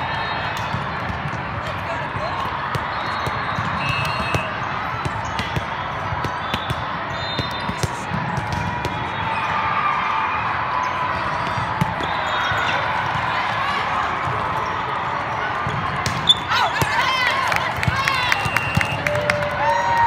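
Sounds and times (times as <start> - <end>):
crowd hubbub: 0.0 - 20.0
ball striking floor: 7.4 - 9.0.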